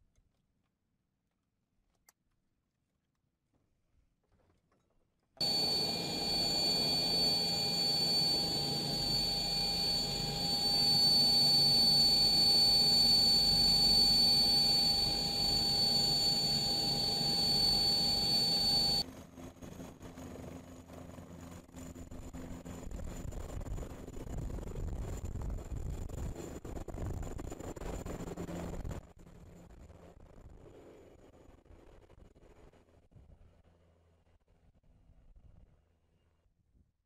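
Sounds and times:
helicopter rumble: 5.4s - 32.9s
helicopter turbine whine: 5.4s - 32.9s.

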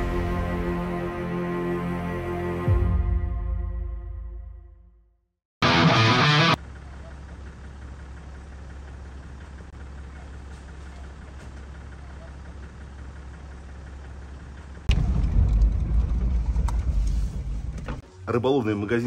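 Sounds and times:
vehicle engine running: 5.6s - 18.0s.

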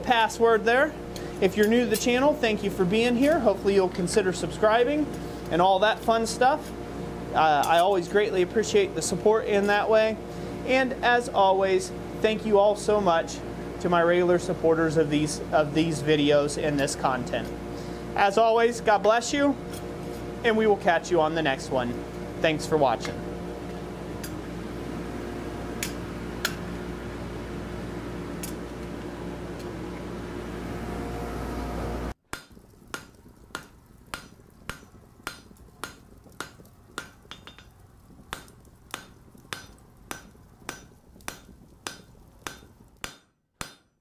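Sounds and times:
hammer striking an anvil: 38.4s - 44.0s.

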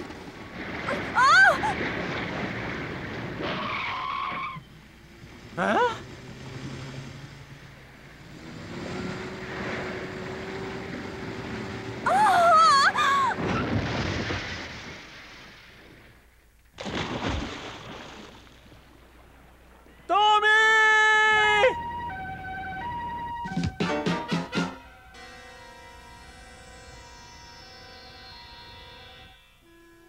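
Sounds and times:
heavy splash into water: 0.0s - 4.4s, 12.2s - 19.6s
man screaming: 0.9s - 1.7s, 12.1s - 13.4s, 20.1s - 21.8s
vehicle engine humming: 4.6s - 13.4s, 21.2s - 30.0s.

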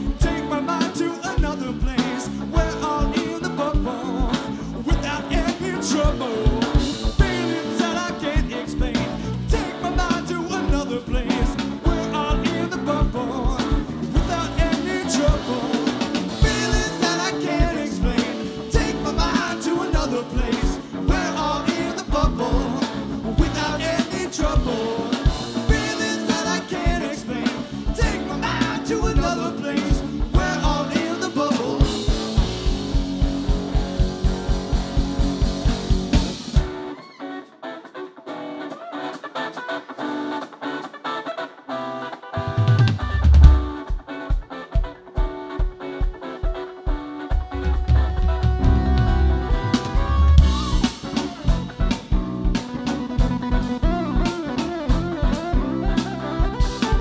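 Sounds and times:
person singing: 0.0s - 32.7s, 45.4s - 57.0s
bass: 0.0s - 36.9s, 42.4s - 43.8s, 47.3s - 57.0s
drum kit beat: 0.0s - 37.0s, 42.4s - 57.0s
electric guitar: 0.0s - 57.0s
keyboards: 0.0s - 57.0s.

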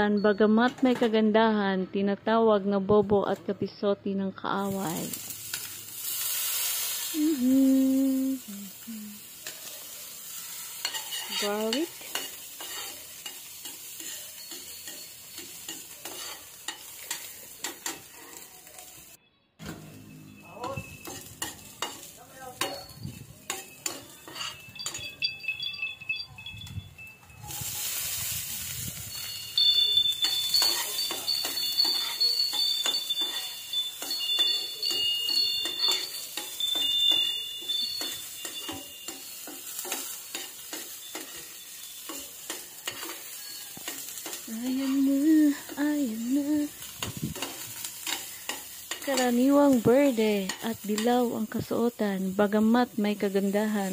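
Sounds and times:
garlic sizzling in a pan: 4.5s - 19.2s, 19.9s - 25.7s, 27.4s - 53.9s
person humming notes: 7.2s - 9.3s
spoon stirring: 10.7s - 18.6s, 20.8s - 26.0s, 29.2s - 51.3s.

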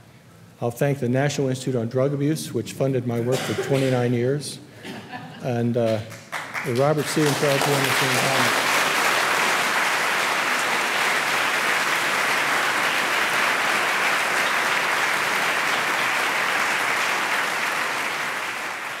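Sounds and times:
audience applauding: 5.9s - 19.0s.

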